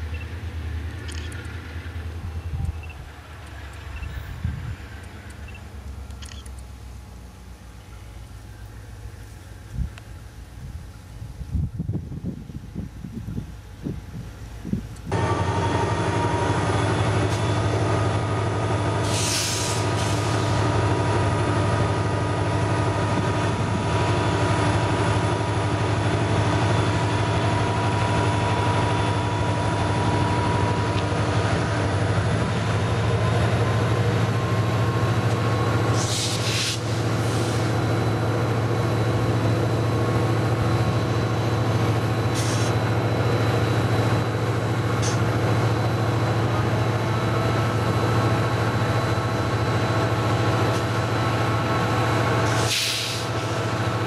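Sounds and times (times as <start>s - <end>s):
locomotive engine drone: 0.0s - 54.0s
short air hisses: 19.0s - 20.6s, 35.9s - 37.7s, 42.3s - 42.8s, 52.4s - 53.6s.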